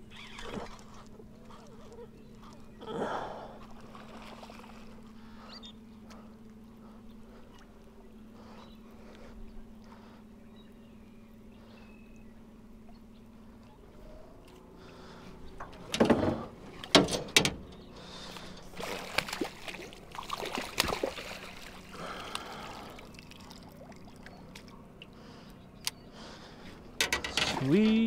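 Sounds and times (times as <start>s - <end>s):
water splashing: 3.7s - 5.0s, 18.2s - 24.8s.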